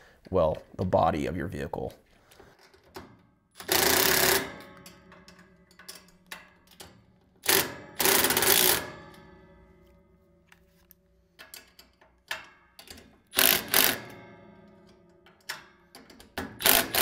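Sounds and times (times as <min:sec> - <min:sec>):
cordless impact driver: 0:03.6 - 0:04.6, 0:07.4 - 0:08.9, 0:13.4 - 0:14.1, 0:16.5 - 0:17.0.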